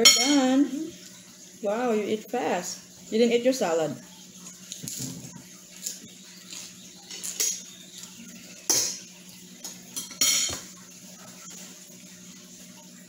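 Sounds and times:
forks clinking on plates: 0:04.8 - 0:07.7, 0:08.6 - 0:10.7.

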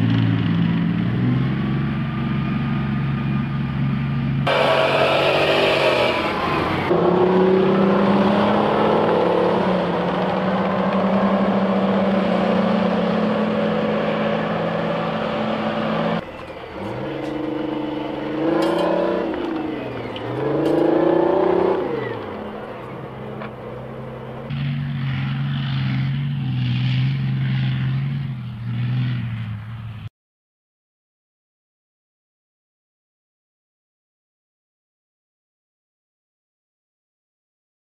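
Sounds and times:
tracked vehicle engines revving: 0:00.0 - 0:30.1.

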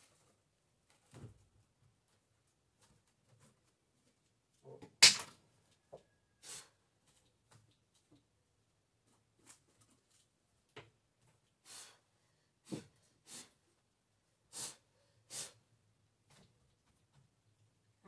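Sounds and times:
person blowing short puffs: 0:14.5 - 0:15.6.

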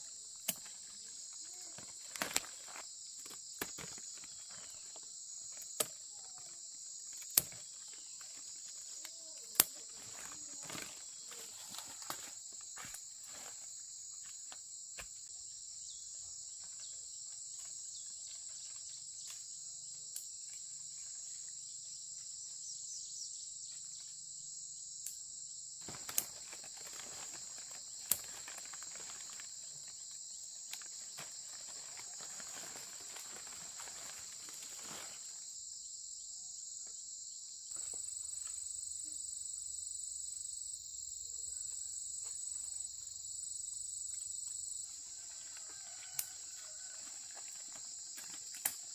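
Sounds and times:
insects droning: 0:00.0 - 0:48.9
rustling: 0:30.7 - 0:35.4.

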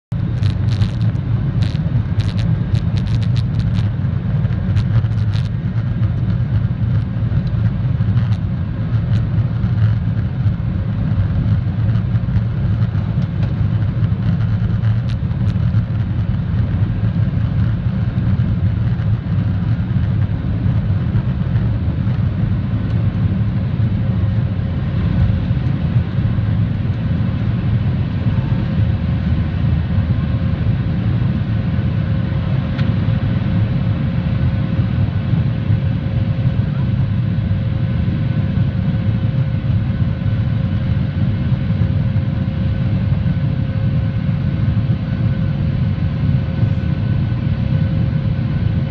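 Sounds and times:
jet engines rumbling: 0:00.1 - 0:48.9.

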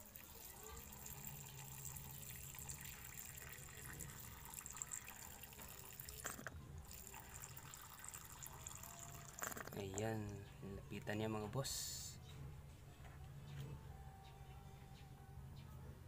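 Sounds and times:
water trickling into a dish: 0:00.0 - 0:10.4.

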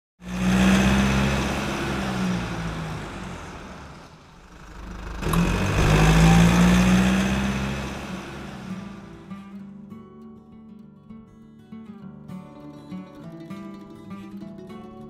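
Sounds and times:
car engine revving: 0:00.2 - 0:09.5.

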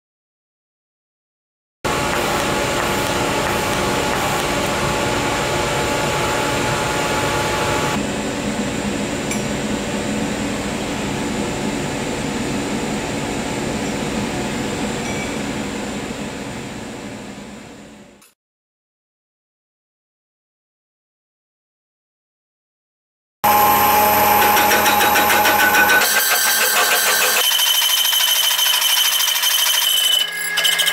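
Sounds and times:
welding arc hissing: 0:01.9 - 0:08.0
machine hum: 0:01.9 - 0:14.8, 0:23.4 - 0:27.6.

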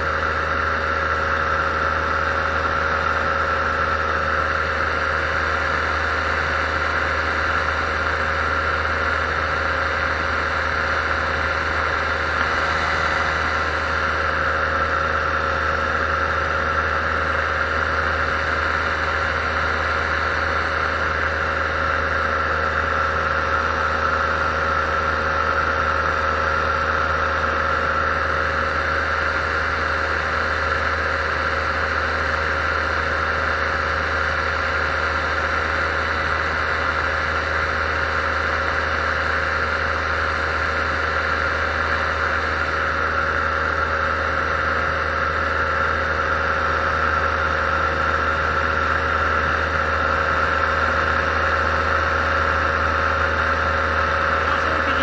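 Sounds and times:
paramotor engine droning: 0:00.0 - 0:55.0.

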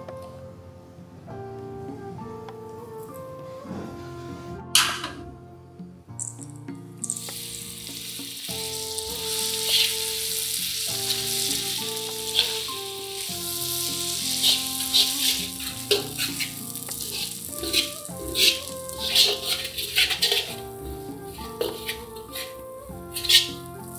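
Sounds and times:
metal spatula scraping wok: 0:07.0 - 0:23.7
paste sizzling in hot oil: 0:07.0 - 0:23.9.

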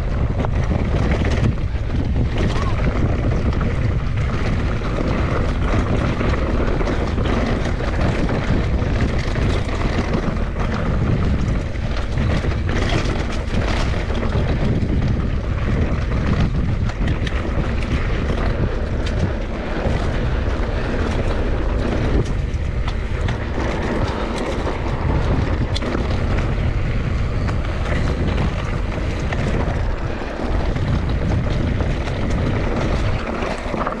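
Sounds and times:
bike clicks and knocks: 0:00.0 - 0:34.0
wind rush on microphone: 0:00.0 - 0:34.0.

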